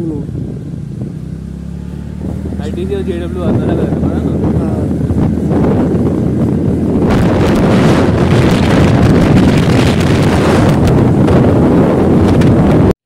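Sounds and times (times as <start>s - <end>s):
wind buffeting microphone: 0.0s - 12.9s.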